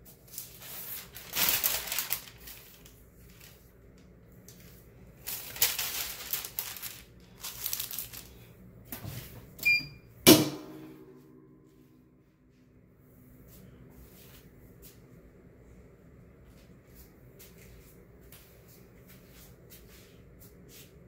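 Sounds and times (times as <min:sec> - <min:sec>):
hands rustling parchment paper: 0:00.0 - 0:08.6.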